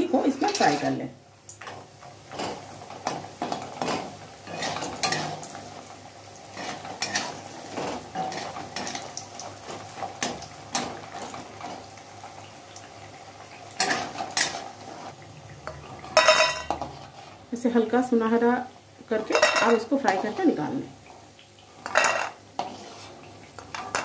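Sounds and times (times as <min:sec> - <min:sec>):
food sizzling in oil: 0:00.0 - 0:24.0
spatula scraping a pan: 0:01.7 - 0:05.8, 0:06.5 - 0:11.9, 0:15.8 - 0:17.4, 0:21.8 - 0:24.0.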